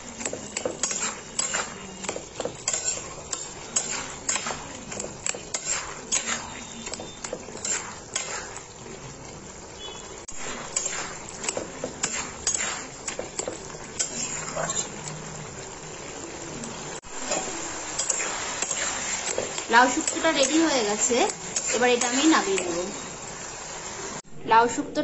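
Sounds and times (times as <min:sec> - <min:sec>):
low sizzle: 0:00.0 - 0:25.0
spatula scraping metal pan: 0:00.2 - 0:08.8, 0:10.2 - 0:15.0, 0:17.2 - 0:22.9.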